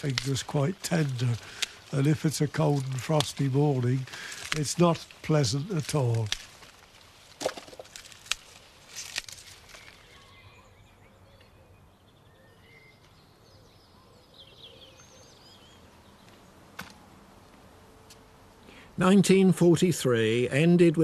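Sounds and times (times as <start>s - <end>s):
sprouts snapping off stalk: 0.0s - 10.2s
faint birds chirping: 8.0s - 19.1s.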